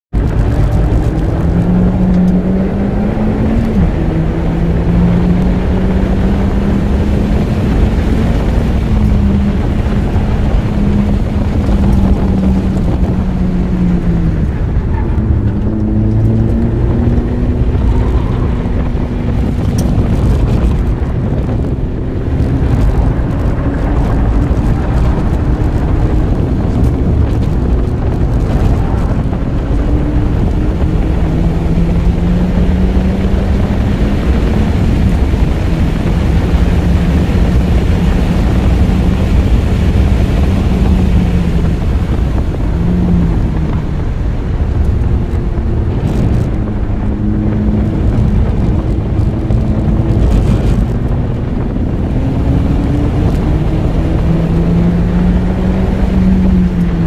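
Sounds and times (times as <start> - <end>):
car engine revving: 0.1 - 57.0
wind rushing over microphone: 0.1 - 57.0.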